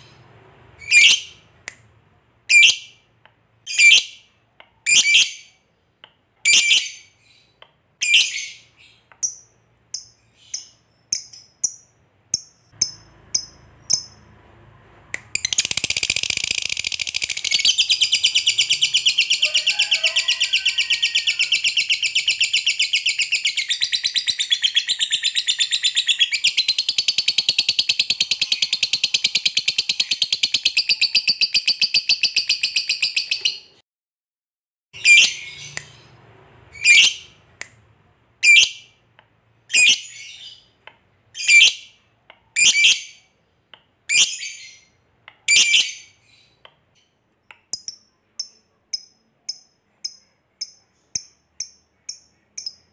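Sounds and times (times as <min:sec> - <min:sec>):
bird chirping: 0:00.0 - 0:01.6, 0:02.5 - 0:03.1, 0:03.7 - 0:14.4, 0:15.2 - 0:33.8, 0:35.0 - 0:37.5, 0:38.4 - 0:39.0, 0:39.7 - 0:42.0, 0:42.6 - 0:52.9
rapid high-pitched bird chatter: 0:15.4 - 0:33.7.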